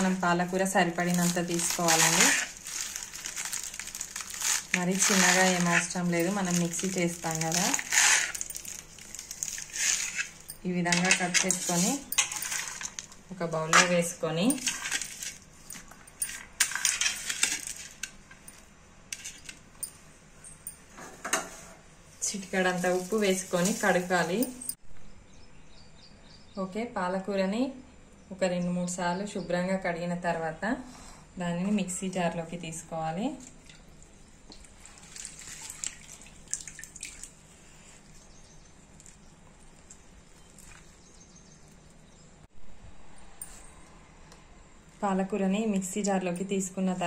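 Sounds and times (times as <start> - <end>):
wet leaves rustling by hand: 0.0 - 13.2, 22.2 - 24.7, 38.9 - 42.0
metal bowl clinking: 3.2 - 21.6
water dripping: 33.5 - 37.4, 38.0 - 41.2.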